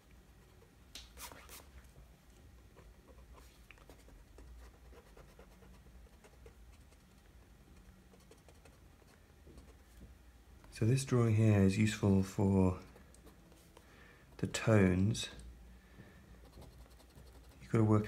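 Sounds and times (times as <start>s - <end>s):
drawing tool scratching paper: 16.4s - 17.6s.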